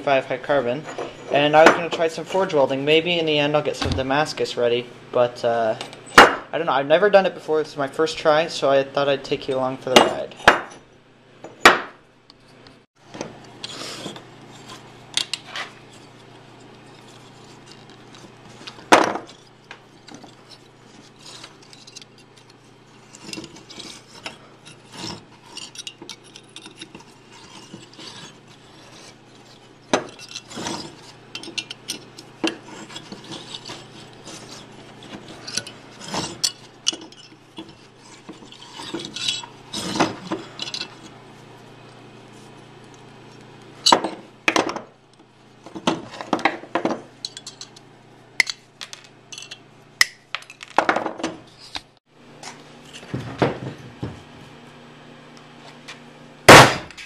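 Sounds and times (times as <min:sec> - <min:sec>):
steady low hum: 0:00.0 - 0:50.6
wire scraping and rubbing: 0:13.5 - 0:43.9.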